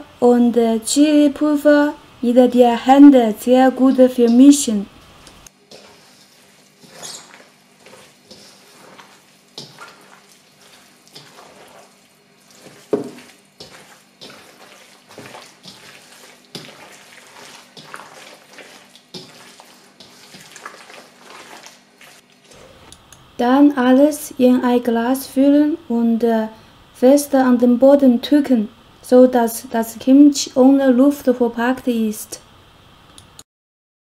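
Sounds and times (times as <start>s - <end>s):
cabbage squelching being kneaded: 5.4s - 22.9s.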